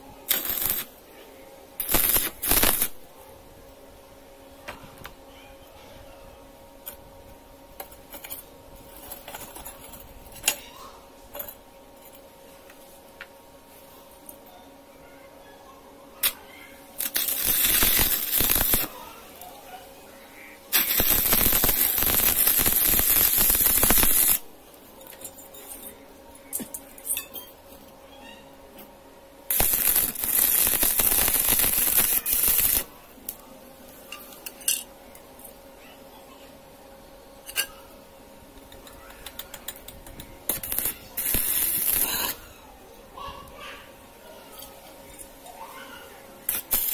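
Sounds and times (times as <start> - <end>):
welding arc crackling: 0.0 - 1.0, 1.8 - 3.1, 16.2 - 19.5, 20.7 - 24.6, 29.5 - 32.9, 39.3 - 42.4, 46.4 - 46.9
faint steady hum: 0.0 - 46.9.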